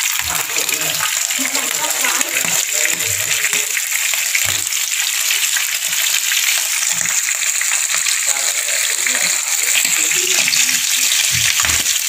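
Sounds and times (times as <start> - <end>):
oil sizzling in a frying pan: 0.0 - 12.0.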